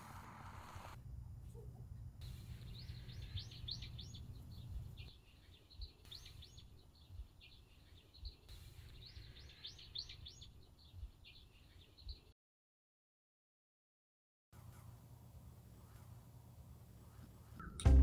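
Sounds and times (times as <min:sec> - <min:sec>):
small bird chirping: 0:02.2 - 0:12.3.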